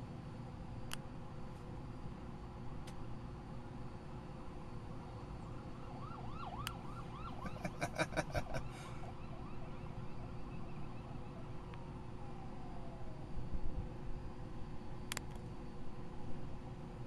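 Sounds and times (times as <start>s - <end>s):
distant police siren: 4.9s - 17.0s.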